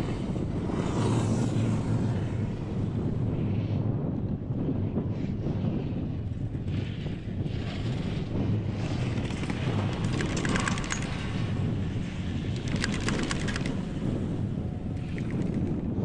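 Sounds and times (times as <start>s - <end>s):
wind buffeting microphone: 0.0s - 16.0s
rapid clicking: 9.1s - 11.4s, 12.5s - 13.9s, 15.0s - 15.8s.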